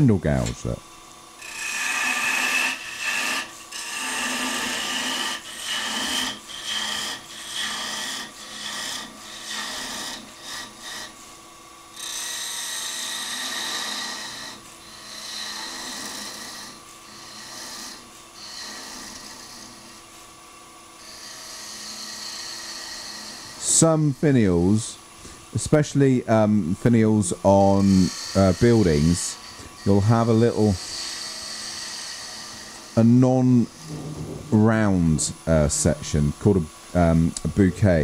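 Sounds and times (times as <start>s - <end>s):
wood lathe gouge cutting: 1.4s - 11.2s, 11.9s - 20.0s, 20.9s - 24.8s, 25.5s - 38.0s
high whine: 33.0s - 38.0s.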